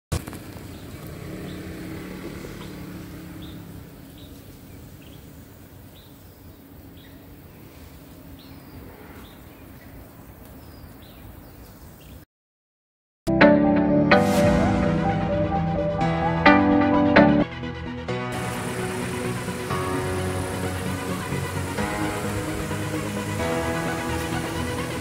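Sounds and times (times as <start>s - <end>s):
bird chirping: 3.4s - 12.3s.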